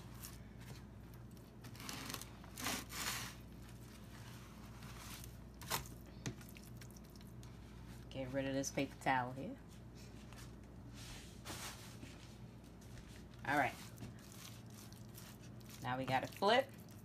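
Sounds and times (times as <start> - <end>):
paper towel rustling: 9.6 - 15.6.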